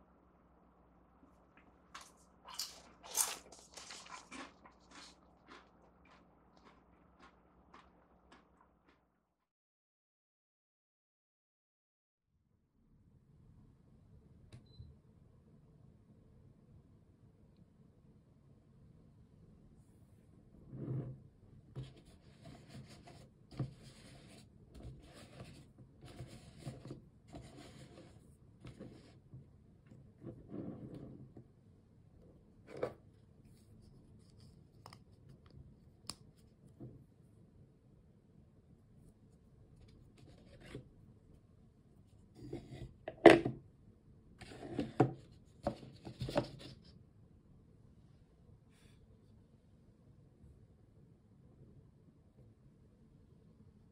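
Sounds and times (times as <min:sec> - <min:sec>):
plastic cone scraping and knocking: 0:30.2 - 0:31.4, 0:44.4 - 0:46.9.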